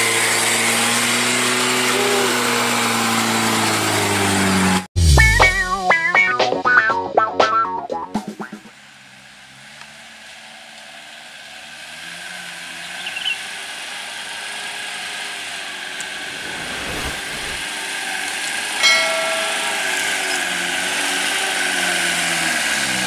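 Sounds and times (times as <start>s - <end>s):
pickup truck engine revving: 8.8s - 23.0s
loud high tone: 18.8s - 20.6s.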